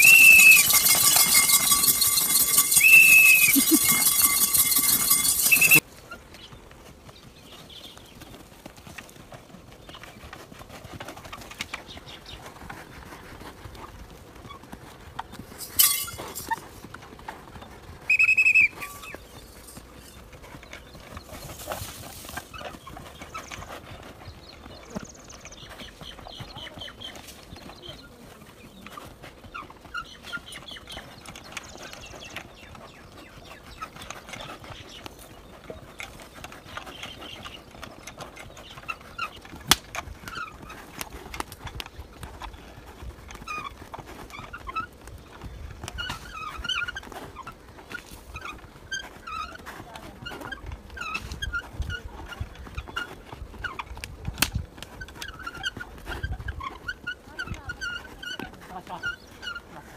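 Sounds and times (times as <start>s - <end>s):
short shrill whistle: 0.0s - 5.8s, 18.1s - 19.0s
hooves drumming on dirt: 0.0s - 59.9s.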